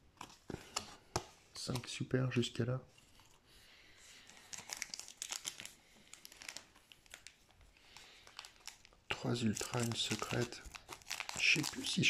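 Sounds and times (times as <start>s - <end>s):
foil wrapper crinkling: 4.3s - 12.0s.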